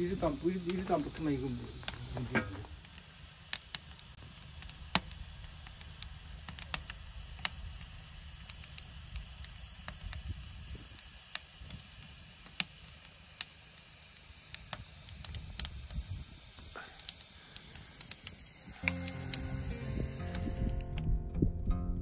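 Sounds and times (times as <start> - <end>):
firewood crackling and popping: 0.0 - 21.1
low steady rumble: 18.4 - 22.0.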